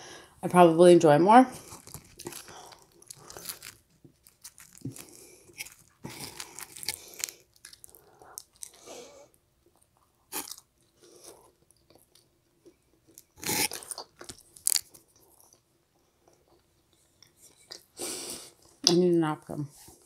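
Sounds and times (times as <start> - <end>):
crunching crust bites: 1.6 - 15.7
person chewing: 1.6 - 18.8.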